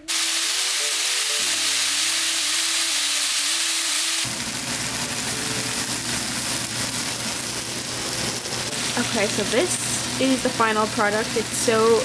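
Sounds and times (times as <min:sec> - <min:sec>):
chicken sizzling in a frying pan: 0:00.0 - 0:12.0
vegetables frying in a pan: 0:00.0 - 0:12.0.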